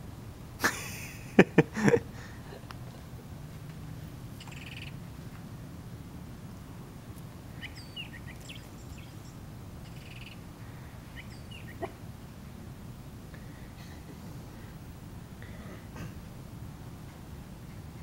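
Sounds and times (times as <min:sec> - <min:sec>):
steady low hum: 0:00.0 - 0:18.0
high chirps and buzzy trills: 0:04.4 - 0:05.1, 0:07.5 - 0:11.9.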